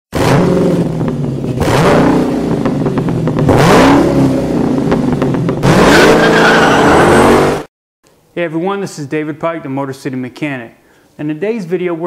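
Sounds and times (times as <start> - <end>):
car engine revving hard: 0.1 - 7.7.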